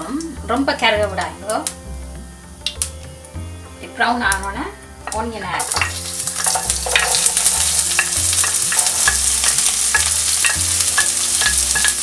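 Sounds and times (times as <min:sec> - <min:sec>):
onion sizzling in hot oil: 0:00.0 - 0:12.0
spatula ticking on pan: 0:05.1 - 0:12.0.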